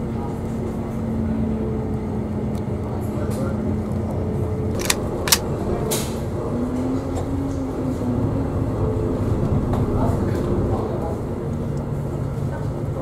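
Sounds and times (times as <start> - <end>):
sharp clicks: 4.7 - 5.5.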